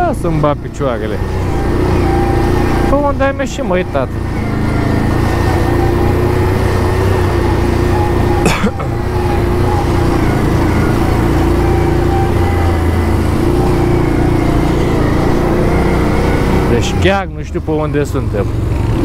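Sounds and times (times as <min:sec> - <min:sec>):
atv engine running: 0:00.0 - 0:19.0.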